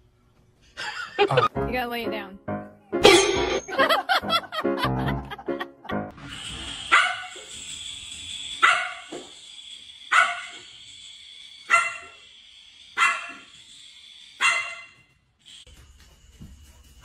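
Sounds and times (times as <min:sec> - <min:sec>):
puppy yapping barks: 0:06.9 - 0:07.3, 0:08.6 - 0:09.0, 0:10.1 - 0:10.5.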